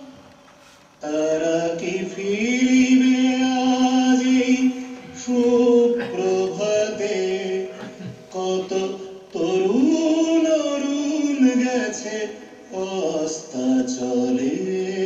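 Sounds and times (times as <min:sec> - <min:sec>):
vocal chanting in held notes: 0:00.0 - 0:15.0.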